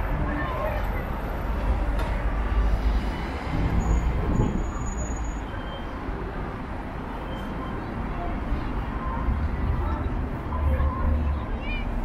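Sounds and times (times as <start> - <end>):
city street traffic rumble: 0.0 - 12.0
heavy vehicle passing: 1.0 - 5.0.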